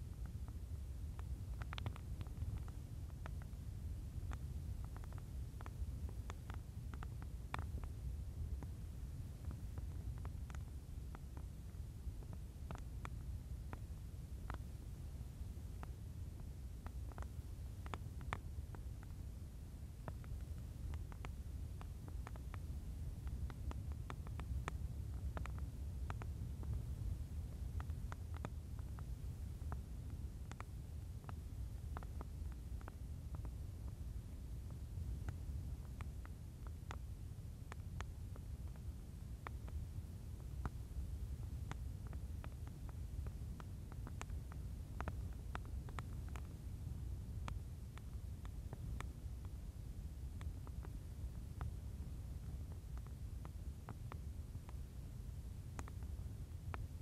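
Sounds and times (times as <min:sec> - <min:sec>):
low steady rumble: 0:00.0 - 0:57.0
wood fire crackling and popping: 0:01.2 - 0:03.6.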